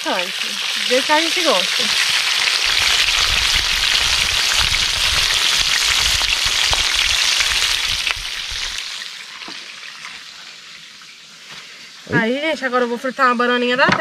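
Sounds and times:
oil popping: 0.0 - 10.3
fish deep-frying in oil: 0.0 - 14.0.

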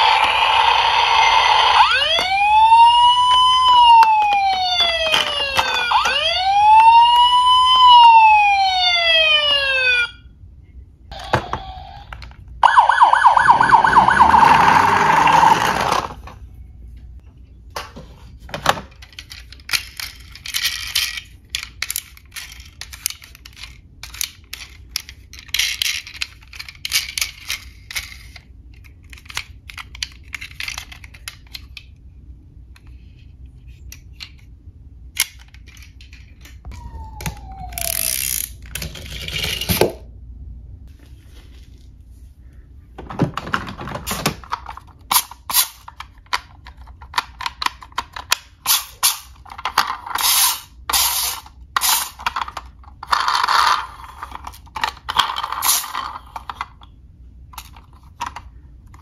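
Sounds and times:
toy police siren wavering: 0.0 - 10.3, 11.1 - 16.2, 36.7 - 38.4
toy cars clicking and rattling: 3.3 - 6.2, 13.9 - 16.3, 18.7 - 32.0, 32.7 - 36.6, 37.2 - 40.0, 43.4 - 59.0
falling electronic tone: 12.6 - 16.1.

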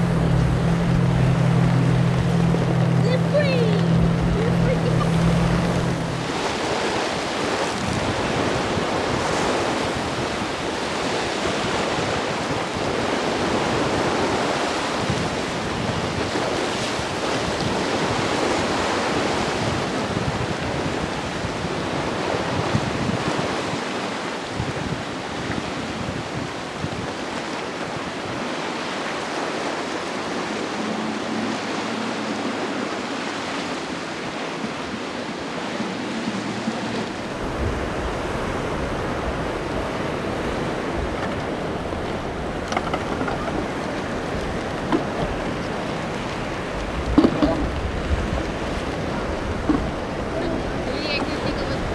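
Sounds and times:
wind buffeting microphone: 0.0 - 23.9, 36.8 - 51.9
surf and breaking waves: 0.0 - 51.9.

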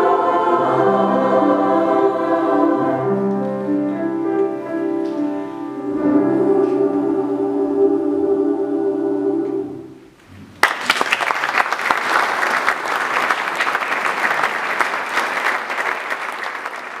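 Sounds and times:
women's choir holding chord: 0.0 - 10.1
audience applause: 10.6 - 17.0.

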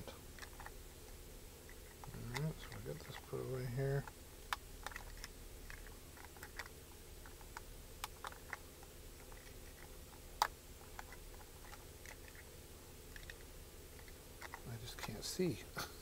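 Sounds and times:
faint steady low hum: 0.0 - 16.0.

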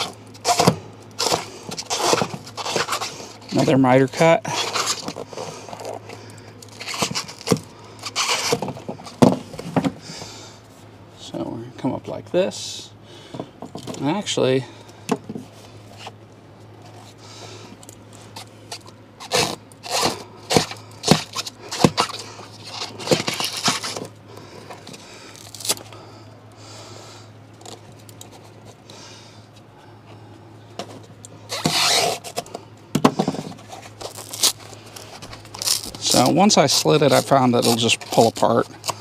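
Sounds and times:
foam scraping and rubbing: 0.0 - 3.7, 4.5 - 5.9, 6.7 - 9.2, 19.2 - 24.1, 31.5 - 32.4
steady low hum: 0.0 - 39.0.

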